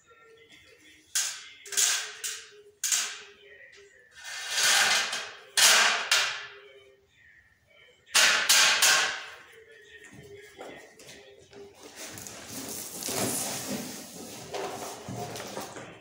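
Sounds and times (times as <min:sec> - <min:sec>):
sheet metal snapping: 0:01.2 - 0:03.3, 0:04.6 - 0:06.5, 0:08.2 - 0:09.3
sheet steel scraping: 0:04.2 - 0:05.3.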